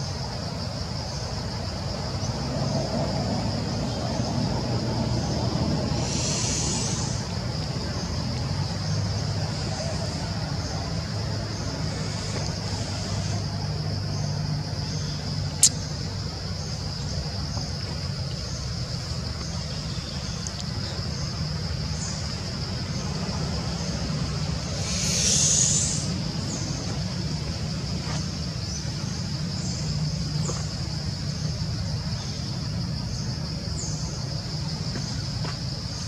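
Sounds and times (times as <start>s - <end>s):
insect drone: 0.0s - 36.0s
brief hiss: 6.0s - 7.2s, 24.8s - 26.1s
small chirps: 15.6s - 15.9s.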